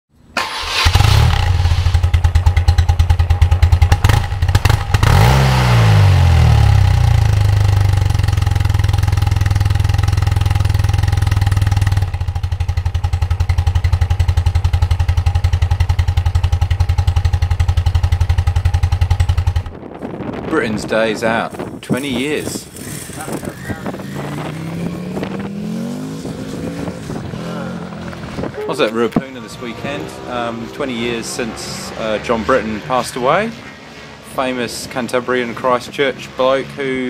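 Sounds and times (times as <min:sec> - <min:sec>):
motorcycle engine starting and idling: 0:00.2 - 0:20.1.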